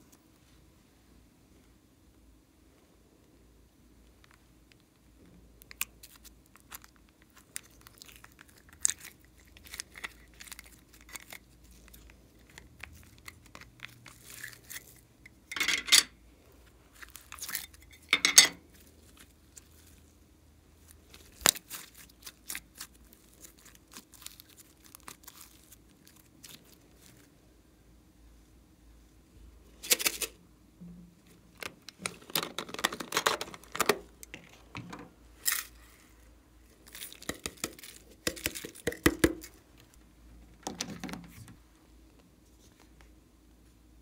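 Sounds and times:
slime crackling and popping: 0:05.6 - 0:15.0, 0:20.8 - 0:27.2.

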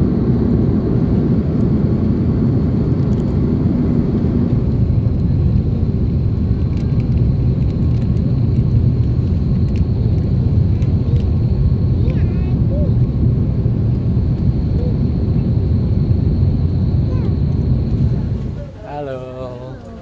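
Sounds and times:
airliner engines rumbling: 0:00.0 - 0:20.0
faint high whine: 0:08.2 - 0:20.0.

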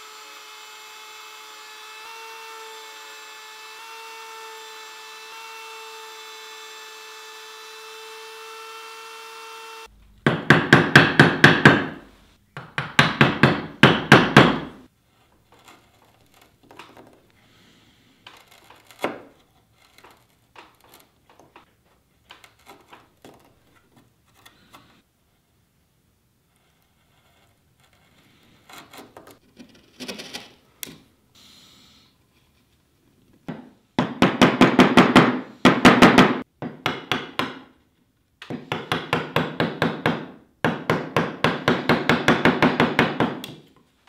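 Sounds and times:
mallet striking chisel: 0:10.2 - 0:12.0, 0:12.6 - 0:14.8, 0:33.5 - 0:37.6
chisel taps and scrapes: 0:12.6 - 0:17.3, 0:18.2 - 0:25.0, 0:26.5 - 0:31.0.

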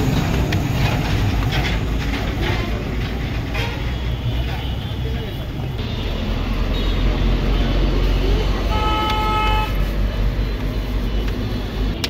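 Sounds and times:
road traffic rumble: 0:00.0 - 0:12.0
vehicle horn honk: 0:08.6 - 0:09.8.

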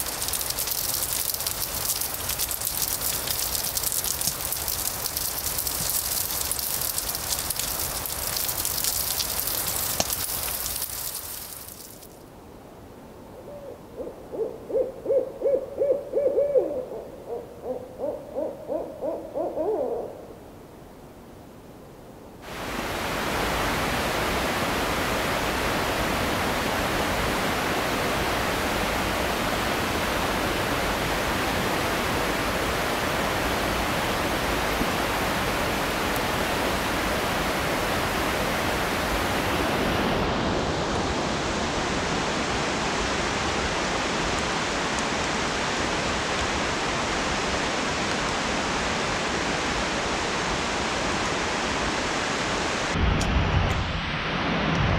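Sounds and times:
owl hooting: 0:13.4 - 0:20.3.

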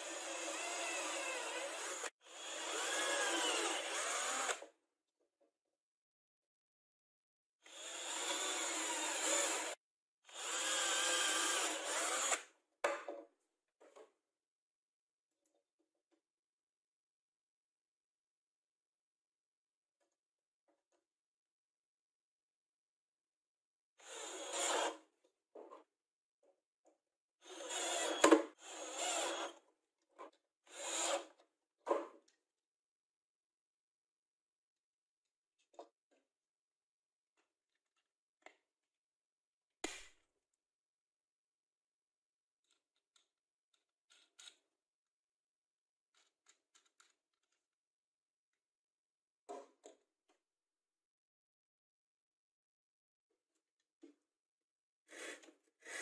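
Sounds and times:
cordless drill boring into wood: 0:00.0 - 0:04.7, 0:07.7 - 0:12.5, 0:24.0 - 0:25.0, 0:27.4 - 0:29.6, 0:30.7 - 0:31.3.

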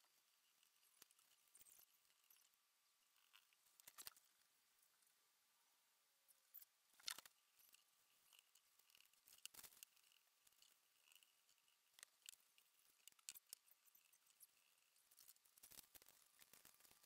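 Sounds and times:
paper and pencil rustles: 0:12.9 - 0:17.0.

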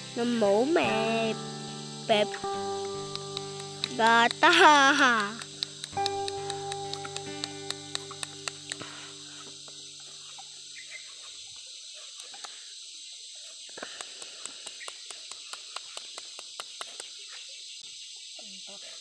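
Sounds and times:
soft background music: 0:00.0 - 0:10.4
steady high hiss: 0:00.0 - 0:19.0
knife shaving bamboo clicks: 0:05.2 - 0:08.9.

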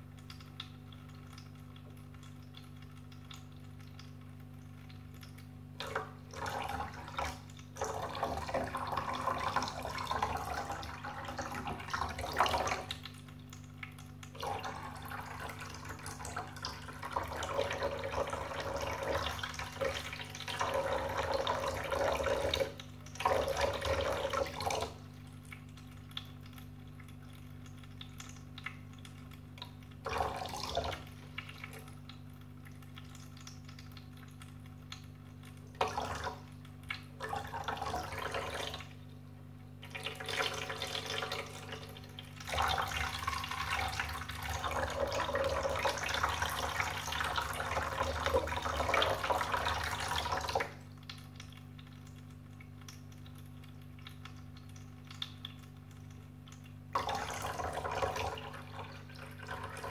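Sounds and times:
cat drinking splashing water: 0:00.0 - 0:39.0, 0:39.8 - 0:59.9
electric pump hum: 0:00.0 - 0:59.9
fountain water trickling: 0:00.0 - 0:59.9.

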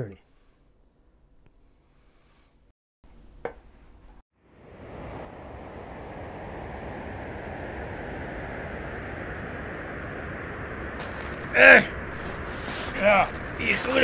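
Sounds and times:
snowstorm wind blowing: 0:04.4 - 0:14.0.

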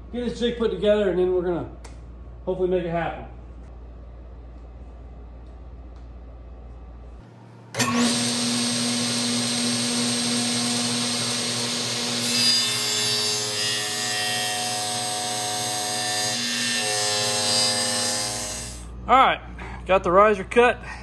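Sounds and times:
table saw cutting wood: 0:07.7 - 0:18.9.

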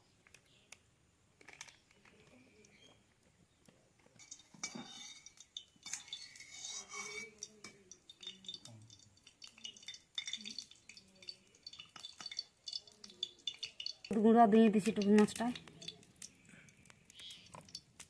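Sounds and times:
metal spatula clinking on pan: 0:04.2 - 0:14.2.

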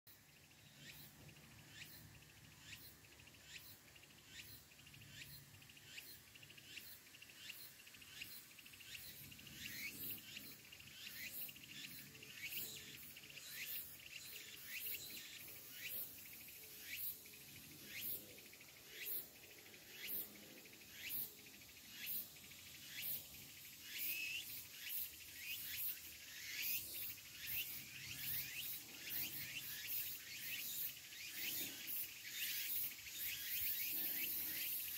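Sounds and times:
cicada singing: 0:00.2 - 0:34.9.

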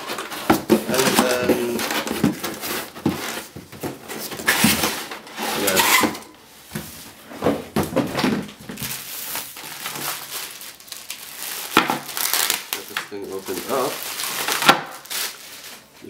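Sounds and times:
plastic wrapping crinkling: 0:00.0 - 0:06.1, 0:07.2 - 0:16.0
cardboard rustling and scraping: 0:00.0 - 0:10.6.

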